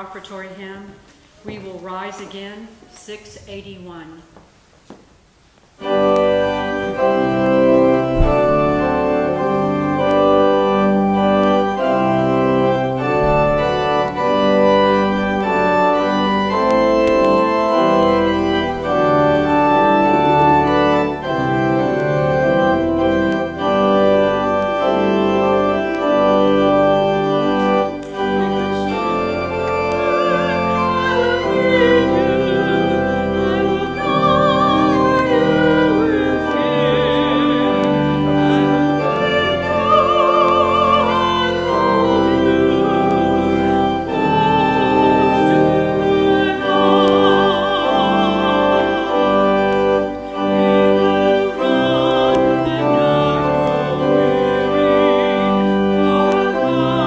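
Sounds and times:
organ playing sustained chords: 5.8s - 57.0s
person singing: 28.1s - 57.0s.

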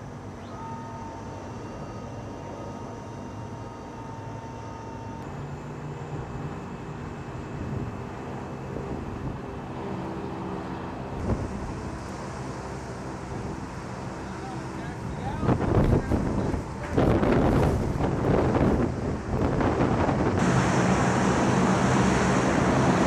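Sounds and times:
thin high whine: 0.0s - 8.7s
aircraft engines droning: 0.0s - 23.0s.

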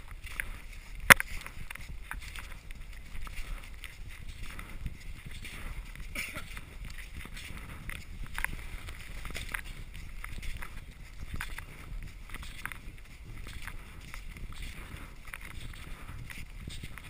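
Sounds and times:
camera handling rumble: 0.1s - 17.0s
scratchy clicks: 0.4s - 1.8s.

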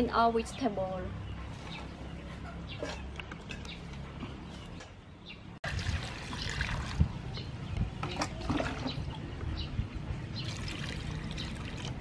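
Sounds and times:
water splashing over vegetables: 5.6s - 7.2s, 10.4s - 12.0s.

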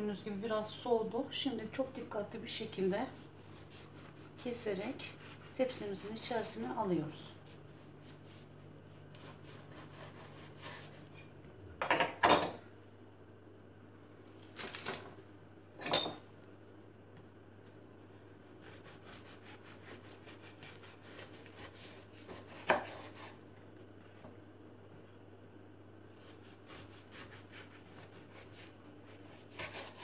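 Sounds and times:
knife rasping through biscotti: 2.8s - 6.6s, 7.2s - 11.2s, 18.6s - 23.4s, 26.1s - 30.0s.

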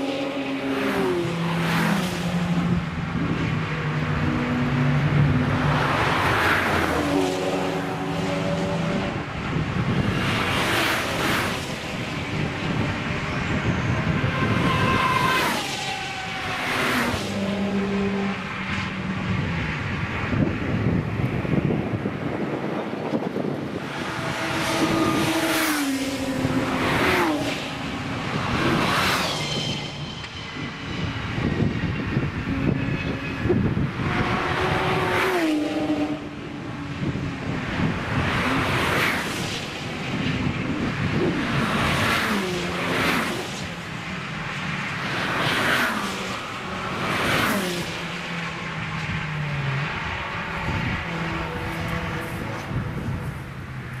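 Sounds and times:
racing car engine approaching: 23.0s - 29.9s.

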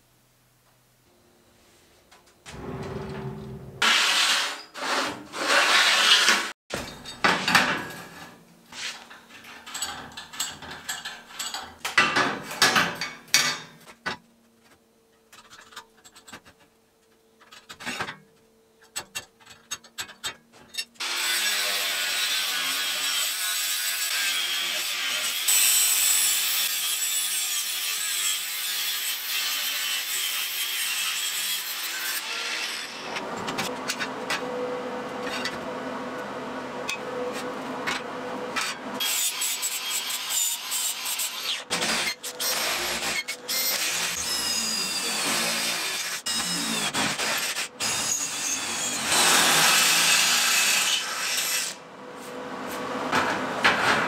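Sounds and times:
angle grinder cutting steel: 21.0s - 33.2s, 39.0s - 51.8s.

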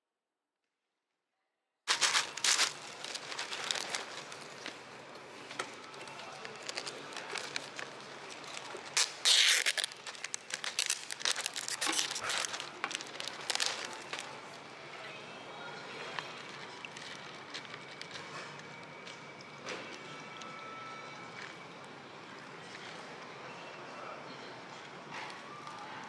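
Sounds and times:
plastic packaging crinkling: 1.9s - 14.6s
plastic film lid peeling: 5.5s - 14.3s
plastic tearing rip: 5.6s - 14.4s.

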